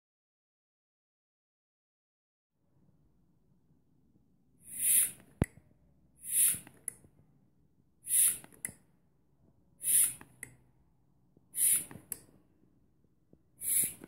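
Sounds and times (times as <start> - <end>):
hand vacuum pump strokes: 4.7 - 5.2, 6.2 - 6.7, 8.1 - 8.5, 9.8 - 10.2, 11.6 - 12.1, 13.6 - 14.0
short hiss of air: 4.7 - 5.2, 6.2 - 6.6, 8.1 - 8.4, 9.8 - 10.2, 11.6 - 12.0, 13.6 - 14.0.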